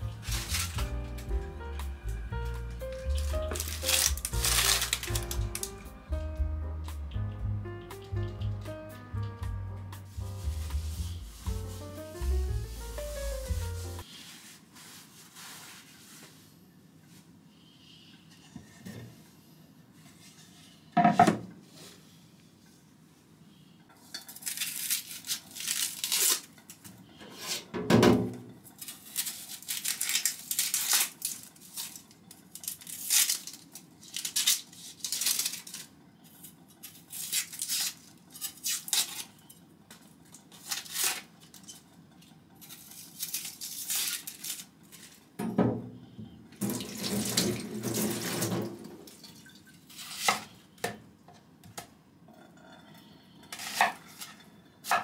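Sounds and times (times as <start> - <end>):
onion skin crackling and tearing: 0.0 - 1.3, 2.7 - 5.8, 24.3 - 26.8, 28.8 - 39.4, 40.5 - 41.8, 42.6 - 45.2.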